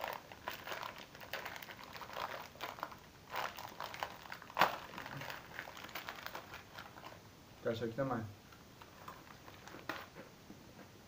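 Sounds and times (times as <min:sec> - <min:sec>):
foil wrapper crinkling: 0:00.0 - 0:07.2, 0:08.8 - 0:10.2.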